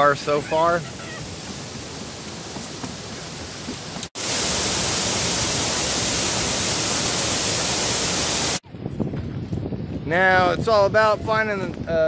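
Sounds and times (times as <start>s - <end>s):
water pouring over a dam: 0.0s - 8.6s.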